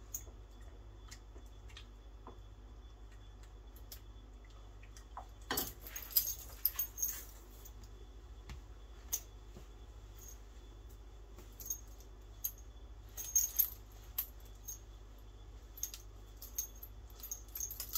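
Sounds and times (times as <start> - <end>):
low steady hum: 0.0 - 17.9
handcuff chain clinking: 5.5 - 7.8, 11.4 - 14.9, 15.6 - 17.9.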